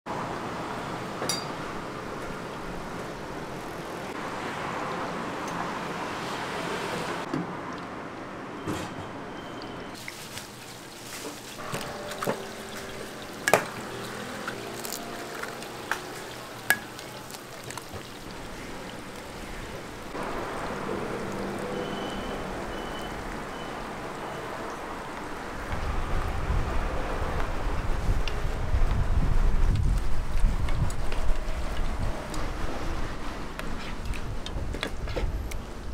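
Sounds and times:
passing traffic: 0.1 - 10.0, 11.3 - 35.9
light metallic clink: 1.3 - 1.6
eggs frying in oil: 10.0 - 21.8.

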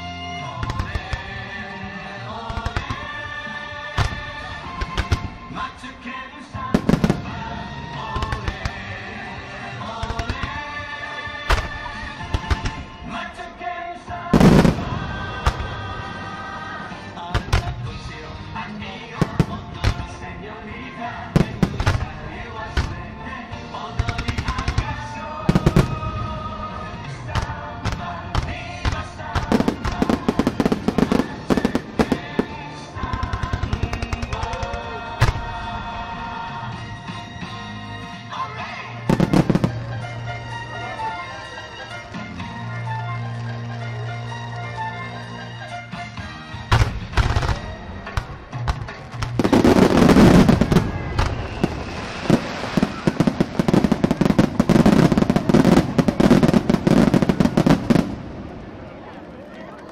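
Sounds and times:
music playing: 0.0 - 59.9
fireworks bangs and cracks: 0.6 - 1.4, 2.4 - 3.3, 3.9 - 5.6, 6.7 - 9.0, 10.0 - 10.8, 11.4 - 13.2, 14.3 - 20.5, 21.2 - 35.9, 39.1 - 40.3, 46.7 - 59.9.

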